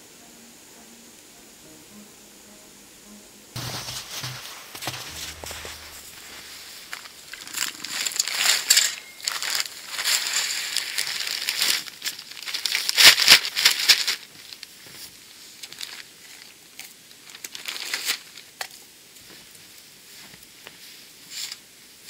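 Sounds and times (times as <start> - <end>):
snow crunching: 3.5 - 11.7.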